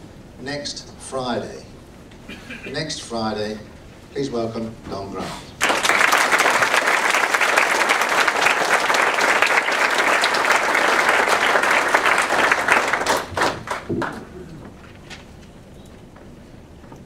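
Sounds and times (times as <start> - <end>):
audience applauding: 5.6 - 14.8.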